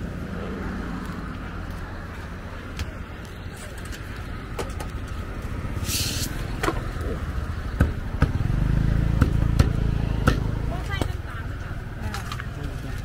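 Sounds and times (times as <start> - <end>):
road traffic rumble: 0.0 - 13.0
short hiss: 5.8 - 6.4.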